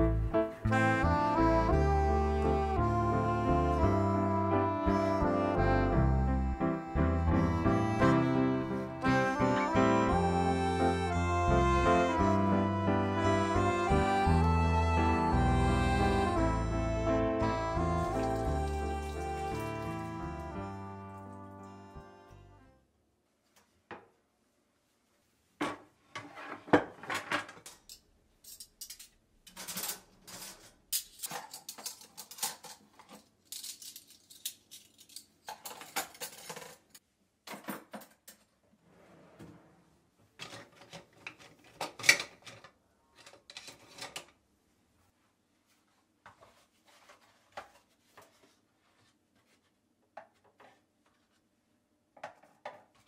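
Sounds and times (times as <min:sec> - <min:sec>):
dishes and cutlery clattering: 0:26.2 - 0:38.4.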